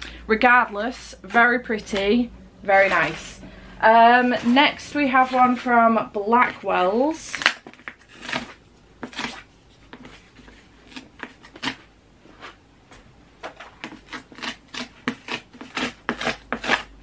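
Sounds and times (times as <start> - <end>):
cardboard tearing: 7.3 - 9.5.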